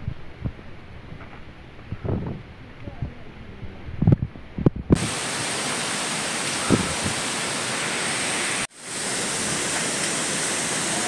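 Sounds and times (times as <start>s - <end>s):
low thumps: 0.0s - 5.1s
waterfall rushing: 5.0s - 11.0s.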